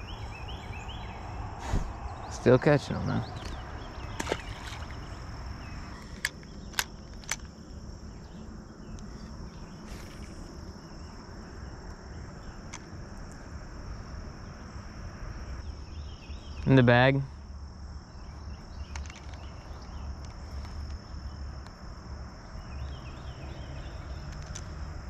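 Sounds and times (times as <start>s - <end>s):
insect chorus buzzing: 0.0s - 25.0s
sharp clicks: 6.0s - 7.6s.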